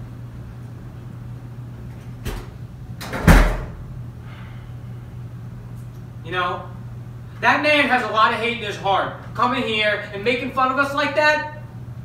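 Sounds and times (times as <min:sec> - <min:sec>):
door slamming: 0:02.2 - 0:03.8.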